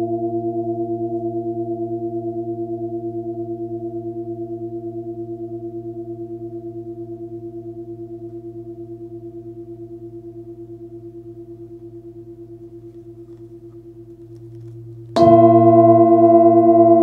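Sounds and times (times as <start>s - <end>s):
singing bowl ringing: 15.2s - 17.0s.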